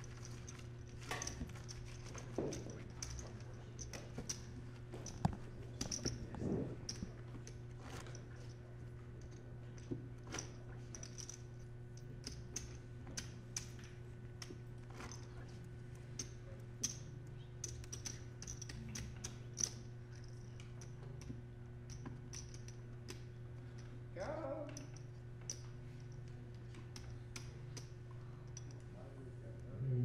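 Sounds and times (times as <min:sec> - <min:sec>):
poker chips clicking: 0:17.6 - 0:20.8
low hum: 0:29.4 - 0:30.0.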